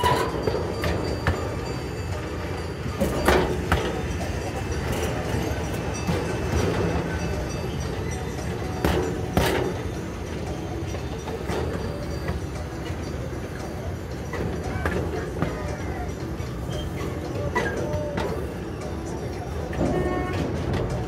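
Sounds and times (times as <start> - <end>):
miniature train rumbling: 0.0 - 21.0.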